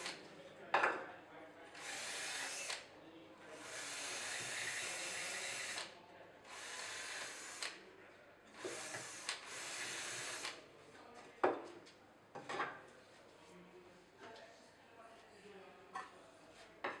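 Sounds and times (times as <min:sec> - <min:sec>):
power tool running: 0:01.8 - 0:02.8, 0:03.6 - 0:05.9, 0:06.5 - 0:07.8, 0:08.6 - 0:10.6.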